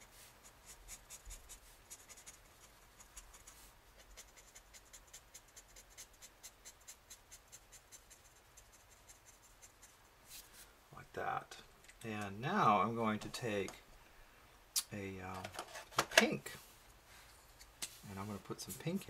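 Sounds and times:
marker scratching on paper: 0.0 - 10.5.

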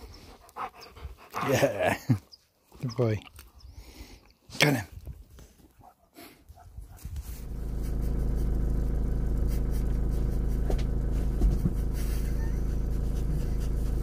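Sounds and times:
vehicle engine idling: 7.2 - 14.0.

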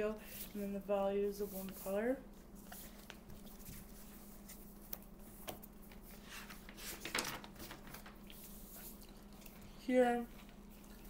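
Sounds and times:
faint steady hum: 0.0 - 11.0
paper page rustling: 2.6 - 8.6.

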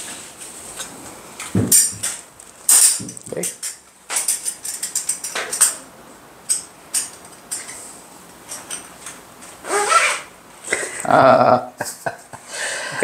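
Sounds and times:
metal buckle clinking: 1.7 - 5.8.

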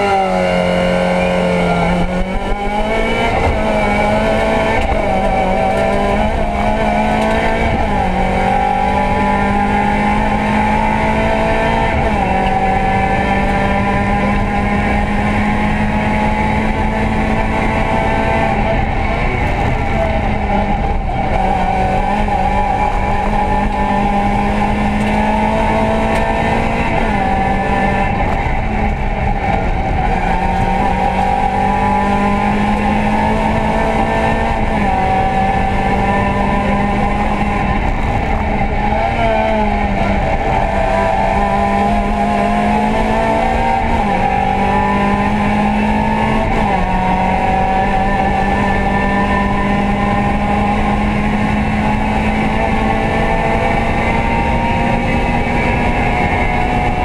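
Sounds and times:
rally car engine under load: 0.0 - 57.0.

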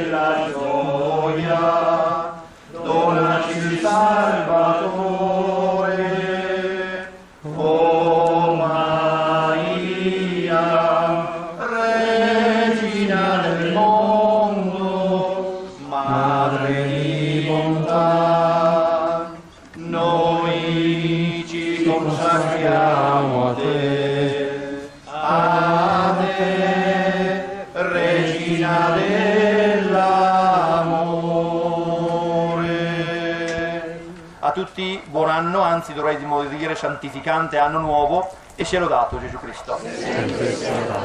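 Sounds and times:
voices chanting a hymn: 0.0 - 41.0.

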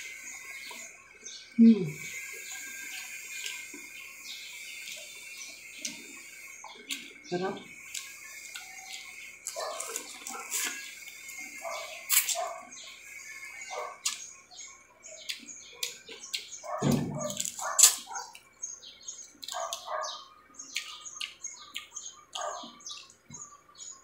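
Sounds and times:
chewing clicks: 7.8 - 11.2, 14.0 - 14.3, 15.2 - 18.5, 19.3 - 23.2.

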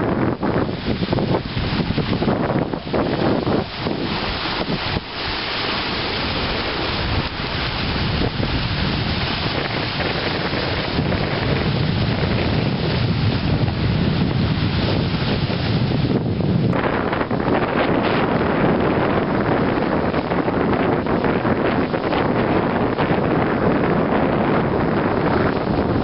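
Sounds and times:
sea waves washing on rocks: 0.0 - 26.0
wind buffeting microphone: 0.0 - 26.0.

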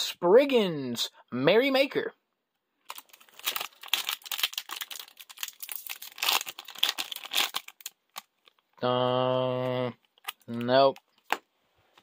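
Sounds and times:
foil wrapper crinkling and tearing: 2.9 - 8.8, 10.1 - 11.4.

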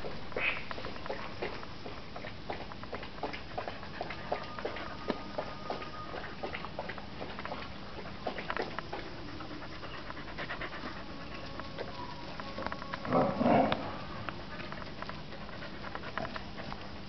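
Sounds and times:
paws and footsteps on pavement: 0.0 - 17.0
dog panting: 3.0 - 17.0.

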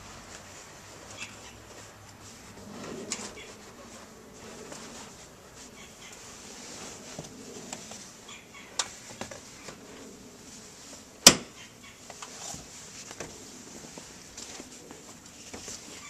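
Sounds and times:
seat cushion rustling and knocks: 8.8 - 10.1.

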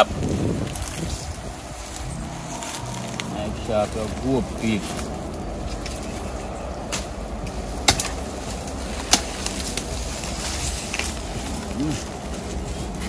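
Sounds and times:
steady low rumble: 0.0 - 13.0
knife cracking sapling stems: 6.8 - 11.8.

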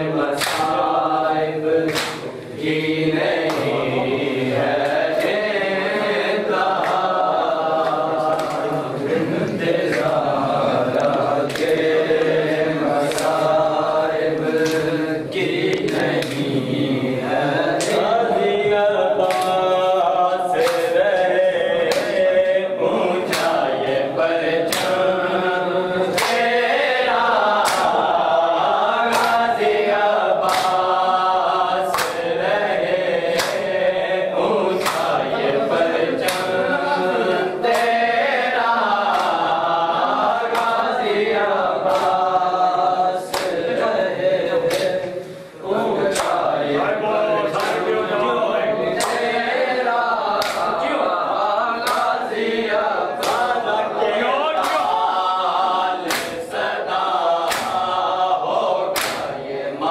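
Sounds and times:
men chanting together: 0.0 - 59.9
hands slapping bare chests: 0.4 - 0.9, 1.9 - 3.8, 6.7 - 7.1, 7.7 - 8.8, 11.0 - 12.4, 13.0 - 13.6, 14.5 - 14.9, 15.6 - 16.5, 19.2 - 19.7, 20.6 - 21.3, 21.9 - 22.2, 23.3 - 23.7, 24.7 - 25.1, 26.1 - 26.5, 27.6 - 28.1, 29.0 - 29.5, 30.4 - 31.0, 31.9 - 32.3, 33.3 - 33.8, 34.7 - 35.3, 36.2 - 36.6, 39.0 - 39.6, 40.5 - 40.9, 41.8 - 42.3, 43.3 - 43.6, 44.7 - 45.1, 46.1 - 46.5, 47.6 - 47.9, 49.0 - 49.3, 50.3 - 50.8, 51.8 - 52.2, 53.2 - 53.6, 54.6 - 55.0, 56.0 - 56.8, 57.4 - 57.9, 58.9 - 59.4.

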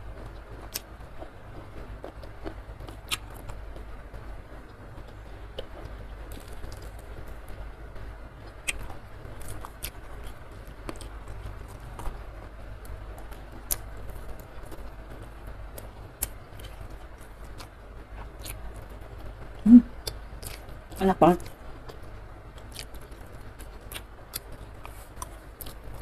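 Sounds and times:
chewing with wet mouth clicks: 8.6 - 8.9, 22.6 - 25.8
person humming: 19.6 - 19.9.

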